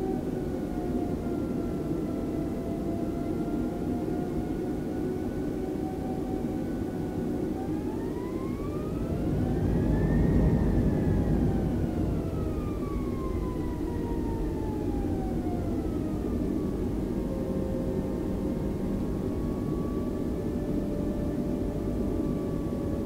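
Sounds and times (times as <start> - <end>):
jet engines spooling up: 8.4 - 15.0
low rumble: 8.8 - 14.4.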